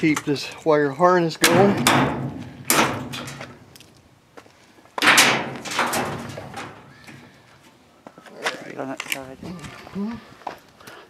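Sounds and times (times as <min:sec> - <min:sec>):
sheet metal clattering knocks: 0:01.4 - 0:03.8, 0:05.0 - 0:07.4
light rattles: 0:01.4 - 0:04.0, 0:05.0 - 0:07.5.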